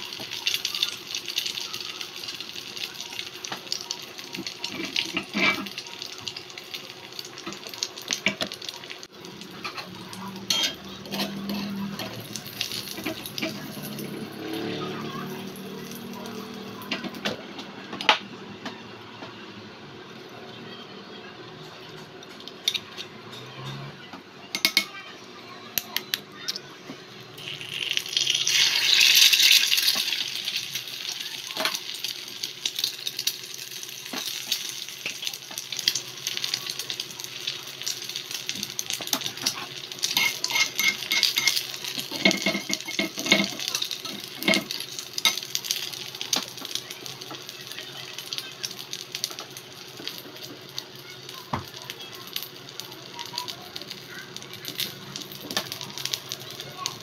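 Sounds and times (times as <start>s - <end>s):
egg sizzling in frying pan: 0.0s - 17.2s, 27.4s - 57.0s
spatula clinking and scraping pan: 4.6s - 5.8s, 9.6s - 14.4s, 39.4s - 45.5s.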